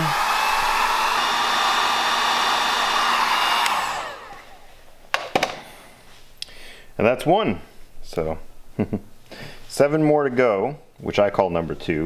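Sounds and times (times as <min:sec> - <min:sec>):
heat gun blowing hiss: 0:00.0 - 0:05.0.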